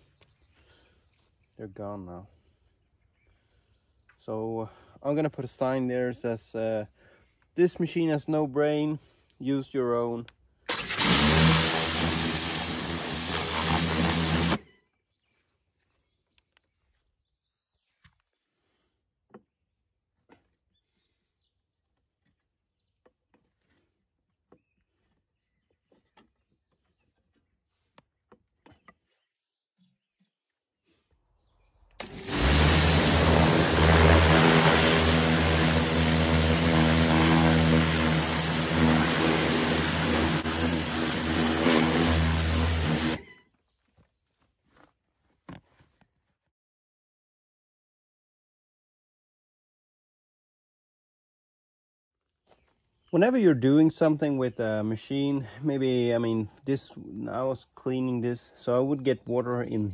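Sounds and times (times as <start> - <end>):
pressure washer spraying: 10.7 - 14.6, 32.0 - 43.3.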